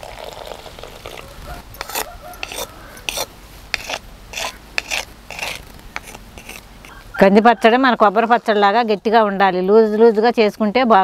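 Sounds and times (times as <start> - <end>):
pestle scraping in stone mortar: 1.1 - 7.0.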